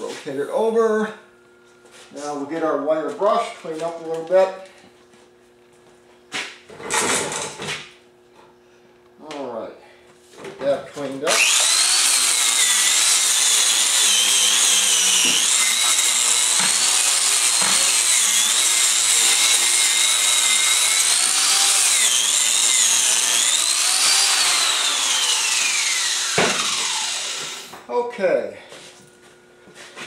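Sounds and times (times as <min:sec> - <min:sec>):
angle grinder wire brush whine: 0:11.2 - 0:27.8.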